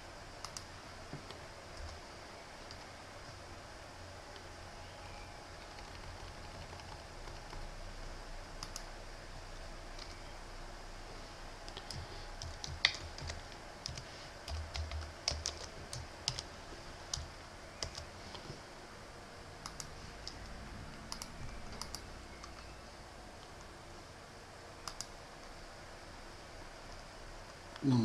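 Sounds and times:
typing on computer keyboard: 5.6 - 7.7, 8.6 - 8.9, 11.7 - 16.5, 17.1 - 18.4, 19.6 - 20.4, 21.1 - 22.7, 24.8 - 25.1.

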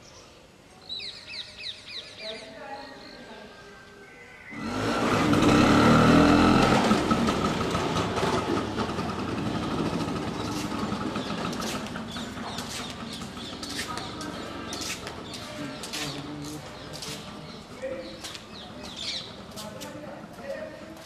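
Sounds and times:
motor vehicle passing: 4.5 - 20.4.

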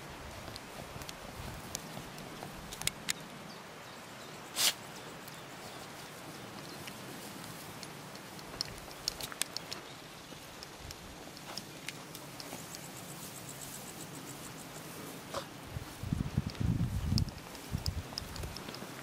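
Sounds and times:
dogs rustling through grass: 0.0 - 2.9, 11.2 - 19.0
steady hiss: 0.0 - 19.0.

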